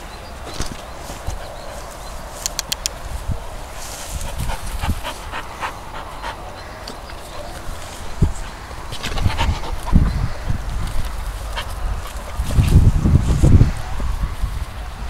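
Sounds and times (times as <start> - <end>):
grass rustling: 0.0 - 15.0
dog panting: 4.1 - 12.8.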